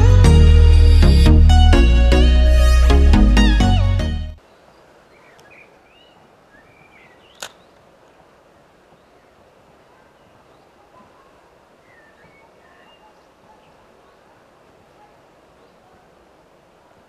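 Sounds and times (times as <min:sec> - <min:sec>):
river hiss: 0:04.4 - 0:10.8, 0:11.4 - 0:17.0
bird chirps: 0:04.7 - 0:07.8, 0:10.0 - 0:14.2
sharp click: 0:07.3 - 0:07.6.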